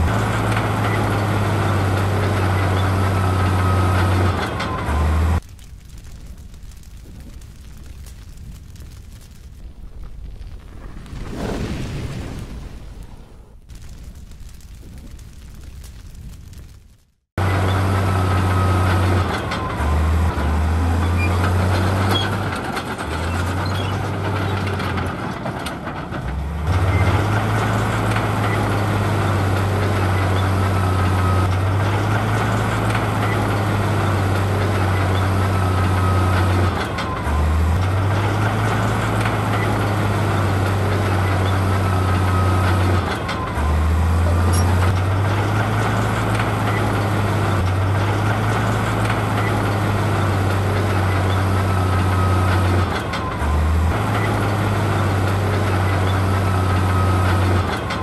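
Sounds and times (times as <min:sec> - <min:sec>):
heavy diesel engine running: 0:00.0 - 0:05.5, 0:17.4 - 0:58.0.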